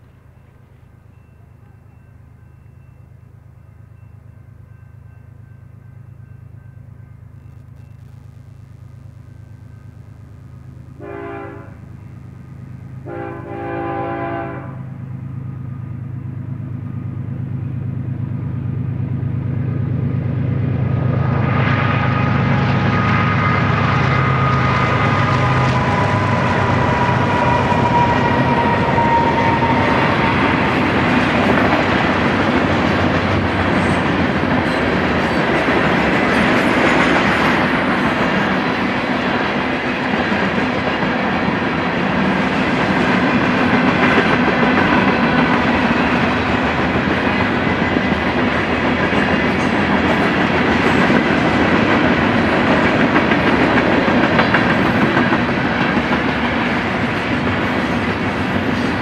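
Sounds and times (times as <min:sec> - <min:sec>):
locomotive engine drone: 0:00.0 - 0:59.0
train horn blasts: 0:11.0 - 0:12.1, 0:13.0 - 0:15.2, 0:21.4 - 0:31.1
train wheels rumbling on rails: 0:11.0 - 0:59.0.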